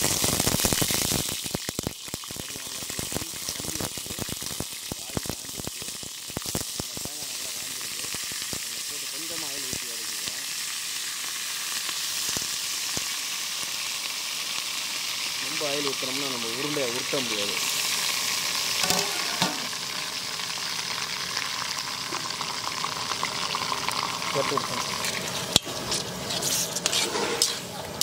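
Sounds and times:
meat sizzling in hot oil: 0.0s - 28.0s.

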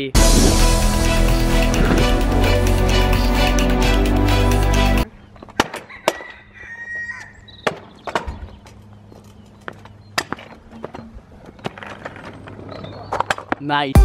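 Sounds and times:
scooter wheels rolling: 7.8s - 13.7s.

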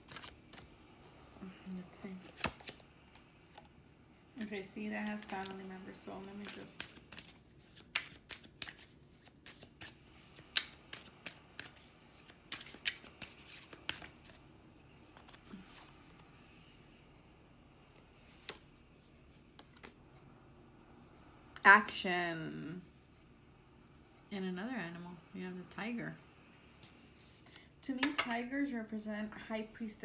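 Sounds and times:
cards being shuffled by hand: 0.0s - 0.7s, 2.1s - 3.7s, 4.4s - 14.4s, 18.2s - 20.0s.

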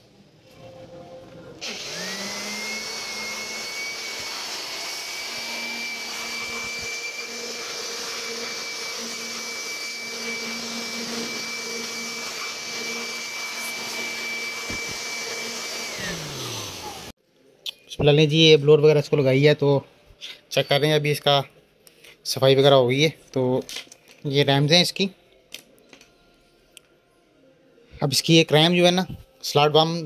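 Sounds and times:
electric blower motor whine: 1.2s - 17.2s.

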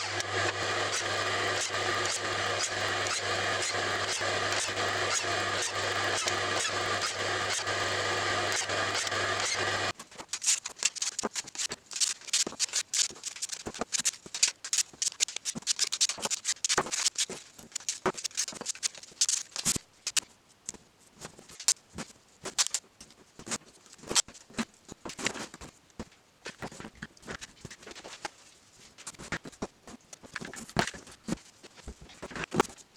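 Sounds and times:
wood pieces rubbing and clacking: 0.0s - 20.2s.

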